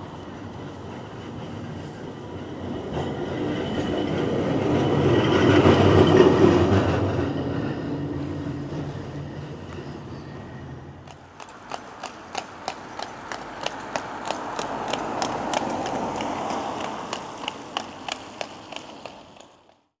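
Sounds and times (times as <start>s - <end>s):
horse hooves clip-clopping on road: 11.0s - 19.9s.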